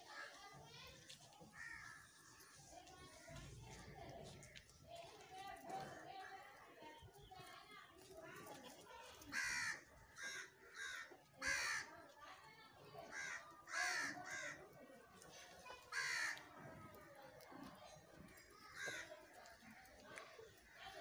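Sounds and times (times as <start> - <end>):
crows cawing: 1.5 - 2.2, 9.3 - 11.9, 13.0 - 14.8, 15.9 - 16.5, 18.6 - 19.7.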